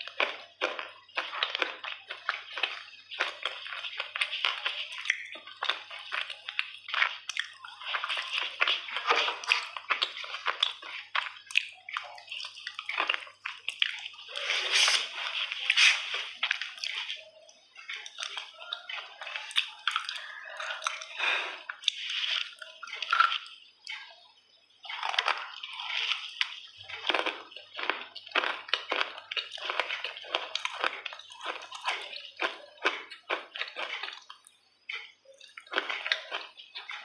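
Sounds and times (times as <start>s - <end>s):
wet clay squelching: 0.0s - 23.2s.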